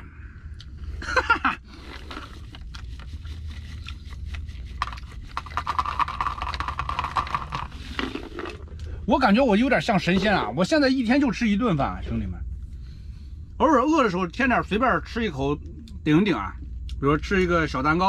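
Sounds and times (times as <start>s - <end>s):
low rumble: 0.0s - 18.0s
steady hum: 0.0s - 18.0s
chili flakes rattling from jar: 4.7s - 8.6s.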